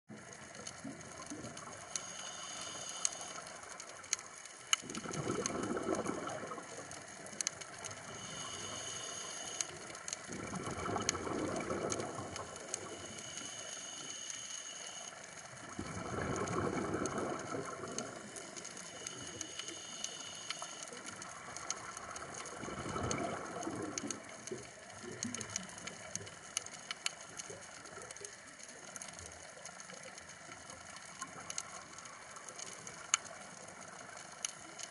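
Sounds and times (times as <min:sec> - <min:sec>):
hiss of inhalation: 0:01.9 - 0:03.8, 0:07.8 - 0:10.2, 0:12.0 - 0:15.2, 0:17.0 - 0:21.8
exhaled bubbles underwater: 0:04.8 - 0:13.4, 0:15.5 - 0:20.0, 0:20.9 - 0:26.4.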